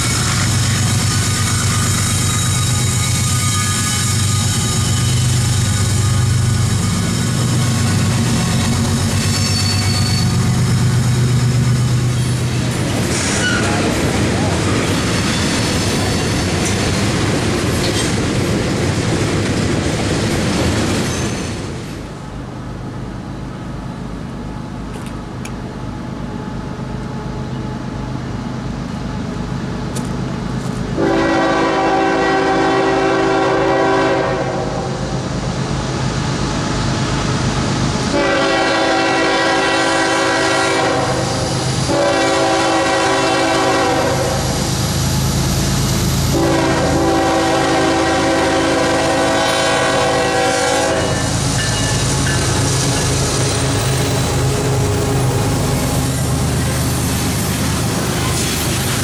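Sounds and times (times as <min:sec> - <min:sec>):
diesel locomotive rumble: 0:00.0 - 0:59.0
locomotive air horn: 0:31.0 - 0:35.0, 0:38.1 - 0:44.6, 0:46.3 - 0:52.4.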